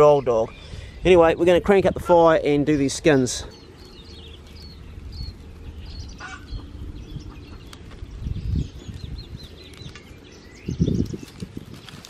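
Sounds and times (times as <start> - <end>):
small birds chirping: 0.0 - 12.0
low rumble: 2.4 - 11.9
dry grass crackling in fire: 2.6 - 12.0.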